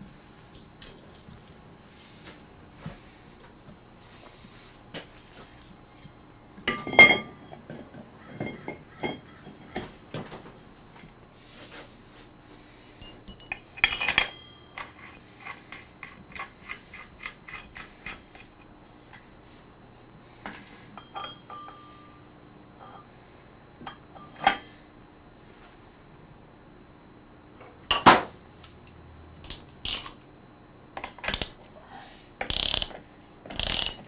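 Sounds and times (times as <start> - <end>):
metal engine parts clanking: 13.0 - 18.6, 29.4 - 30.2.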